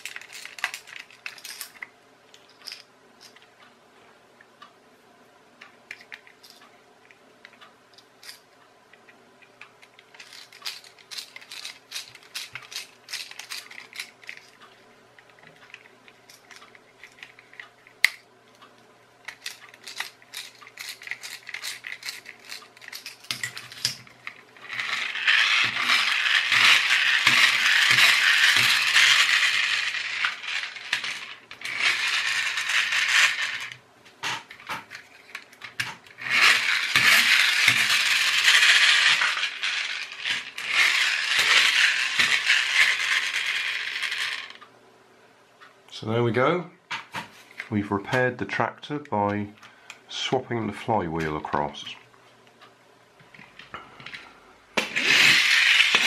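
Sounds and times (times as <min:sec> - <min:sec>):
toy flywheel motor whirring: 0:00.0 - 0:01.8, 0:10.1 - 0:14.6, 0:19.3 - 0:33.8, 0:36.1 - 0:44.6, 0:54.8 - 0:56.0
plastic toy parts handled: 0:00.0 - 0:03.4, 0:09.8 - 0:18.2, 0:19.2 - 0:44.6, 0:54.8 - 0:56.0.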